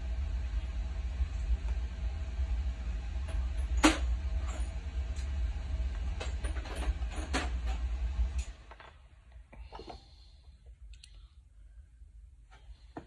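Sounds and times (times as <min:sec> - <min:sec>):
low rumble: 0:00.0 - 0:08.7.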